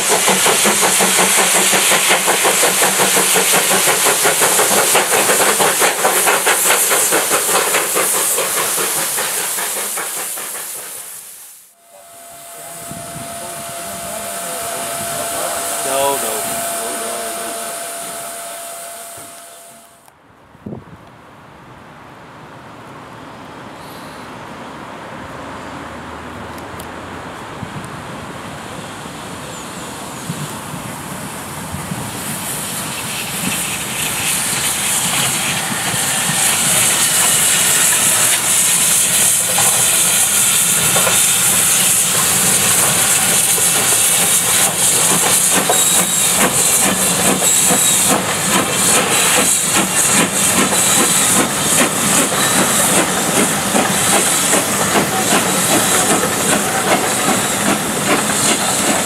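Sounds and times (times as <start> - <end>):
train wheels clattering on rails: 0.0 - 11.2, 30.1 - 59.0
steam hissing: 0.0 - 20.0, 29.5 - 59.0.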